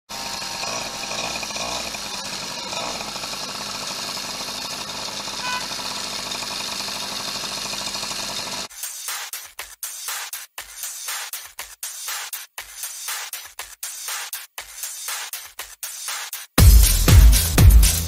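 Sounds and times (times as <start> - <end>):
two-stroke moped engine buzzing: 0.1 - 8.7.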